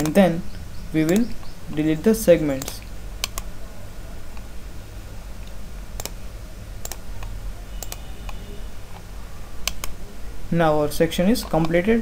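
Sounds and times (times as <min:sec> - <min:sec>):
faint low hum: 0:00.0 - 0:12.0
computer mouse clicking: 0:01.0 - 0:01.8, 0:02.6 - 0:03.5, 0:05.4 - 0:06.2, 0:06.8 - 0:10.0.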